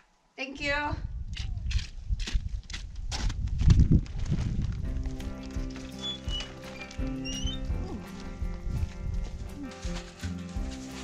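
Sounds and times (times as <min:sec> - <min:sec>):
background music with held notes: 0:04.8 - 0:11.0.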